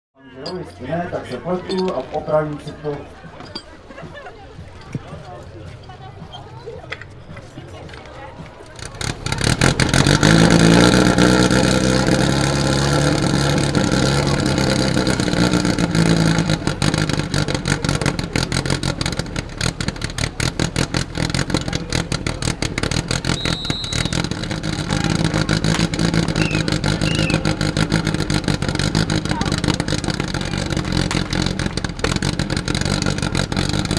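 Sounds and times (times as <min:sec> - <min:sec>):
pump engine at high revs: 0:08.8 - 0:33.9.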